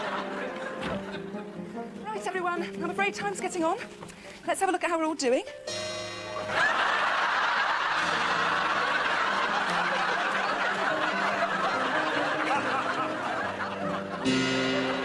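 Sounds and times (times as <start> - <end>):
audience laughing: 0.0 - 1.8, 6.3 - 15.0.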